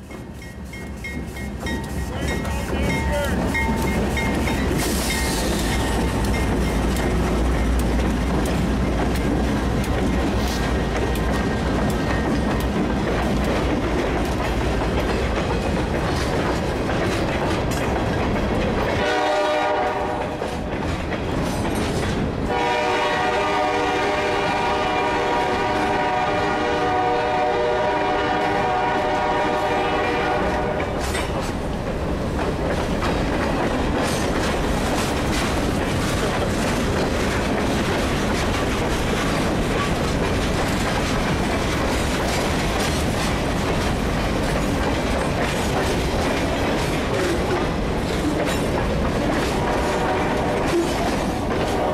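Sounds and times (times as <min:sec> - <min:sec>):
wheels clacking over rail joints: 0:00.0 - 0:51.9
freight cars rumbling: 0:01.2 - 0:51.9
locomotive horn: 0:18.9 - 0:20.4, 0:22.5 - 0:31.1, 0:49.6 - 0:51.9.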